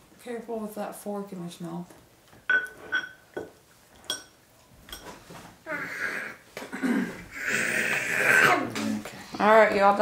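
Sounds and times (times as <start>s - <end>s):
metal fork clinking on glass bowl: 2.5s - 3.2s, 4.1s - 5.1s
toddler vocalizing: 5.6s - 6.4s, 7.2s - 8.8s.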